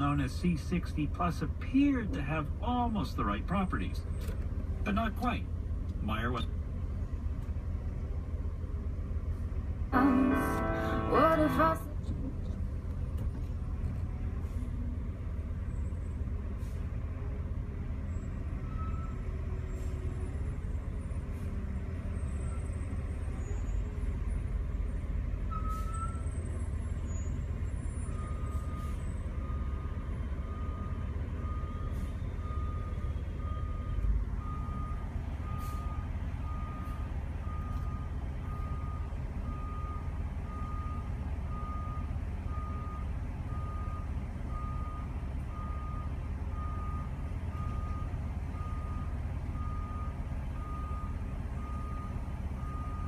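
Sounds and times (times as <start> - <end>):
diesel truck engine rumbling: 0.0 - 53.0
truck reversing alarm beeping: 10.0 - 11.9, 18.0 - 53.0.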